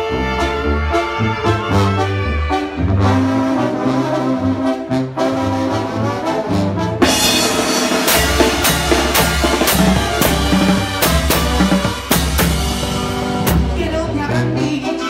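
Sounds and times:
brass band playing: 0.0s - 15.0s
drum kit and cymbals beat: 7.0s - 14.1s.

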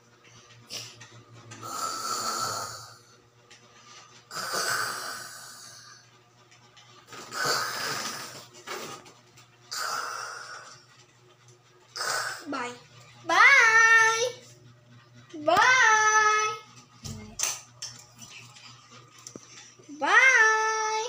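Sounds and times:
raspy snore-like breaths: 1.6s - 3.2s, 4.2s - 6.1s, 7.2s - 8.6s, 9.7s - 10.9s, 12.0s - 12.5s.

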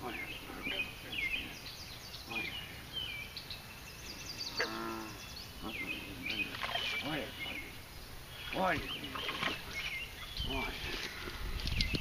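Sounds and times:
birds chirping: 0.0s - 12.0s
low moo-like call: 4.6s - 5.2s.

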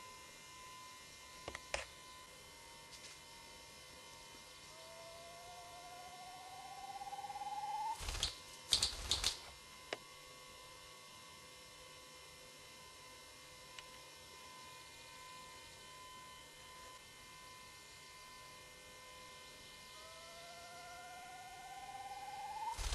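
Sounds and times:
faint steady hum: 0.0s - 22.9s
grouse rising pulsed display: 4.6s - 9.3s, 20.0s - 22.9s
grouse wing claps: 8.0s - 9.4s.

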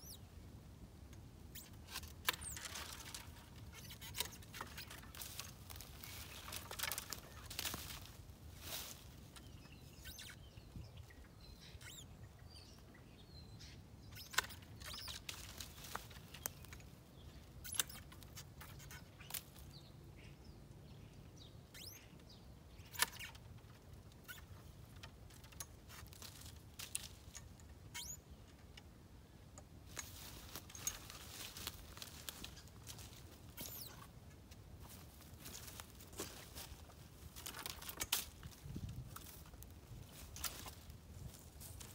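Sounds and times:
small birds chirping: 0.0s - 0.5s, 1.5s - 41.9s
twigs rustling: 1.5s - 10.4s, 14.1s - 19.8s, 22.8s - 28.2s, 29.8s - 41.9s.

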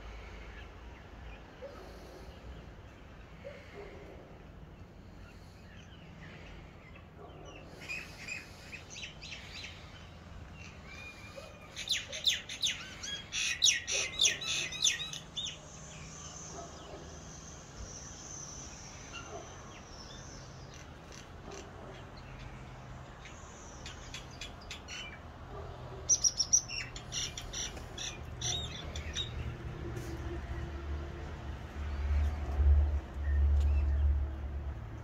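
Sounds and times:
small birds chirping: 0.0s - 30.8s.

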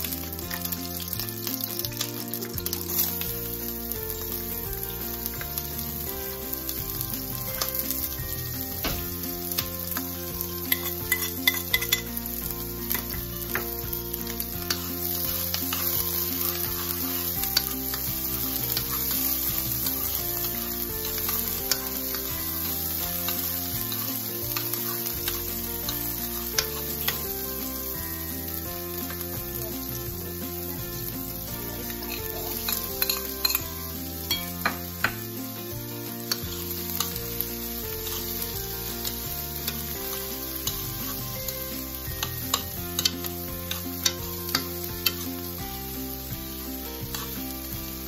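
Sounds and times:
onions sizzling in oil: 0.0s - 48.0s
spoon tapping against pan: 9.6s - 12.1s, 32.7s - 33.6s, 34.3s - 35.3s.

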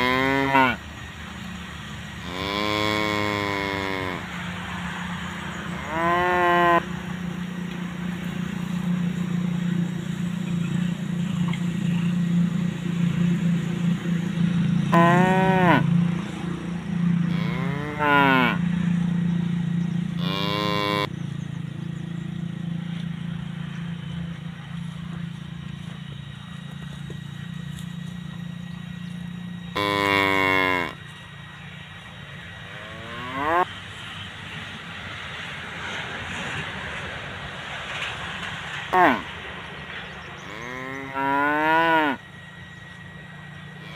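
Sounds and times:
cattle mooing: 0.0s - 0.8s, 2.2s - 4.4s, 5.8s - 6.9s, 14.9s - 15.9s, 17.2s - 18.7s, 20.2s - 21.1s, 29.8s - 31.0s, 32.6s - 33.7s, 38.9s - 39.3s, 40.4s - 42.2s
steady low hum: 0.0s - 43.9s.

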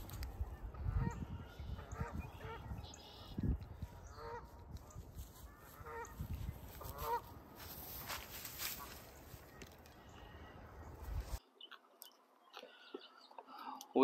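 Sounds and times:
geese honking: 0.7s - 7.4s
footsteps on grass: 3.8s - 10.0s.

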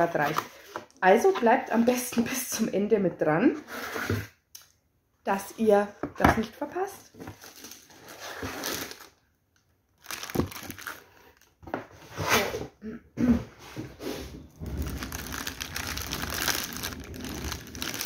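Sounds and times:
plastic bag crinkling: 10.0s - 11.5s, 14.5s - 18.0s
cardboard box and paper rustling: 14.6s - 18.0s.

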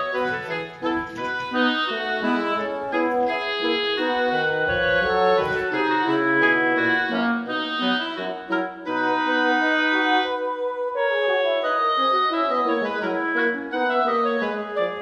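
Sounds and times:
light instrumental music: 0.0s - 10.8s.

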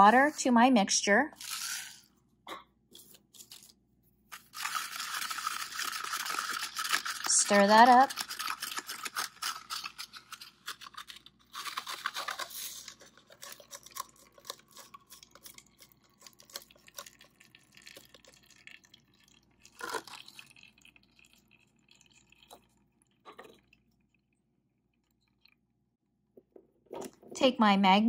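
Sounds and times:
clicks and drips: 15.5s - 25.6s.

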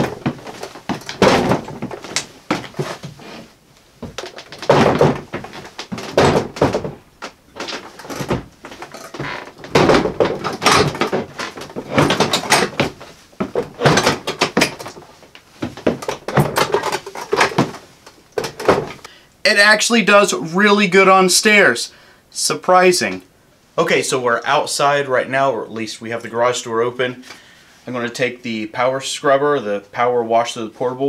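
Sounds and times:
tool box wheels thumping stairs: 0.0s - 3.4s, 4.0s - 15.0s
boots on wooden steps: 0.0s - 17.9s.

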